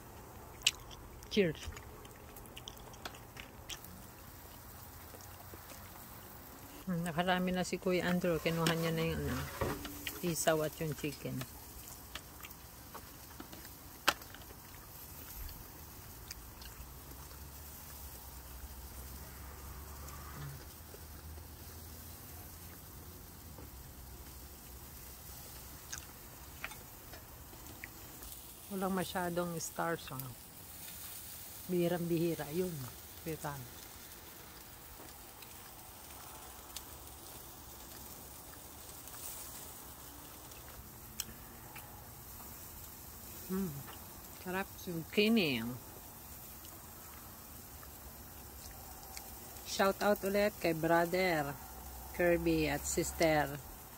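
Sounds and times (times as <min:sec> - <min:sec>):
low steady hum: 0:00.0 - 0:21.0
faint outdoor hiss: 0:00.0 - 0:53.9.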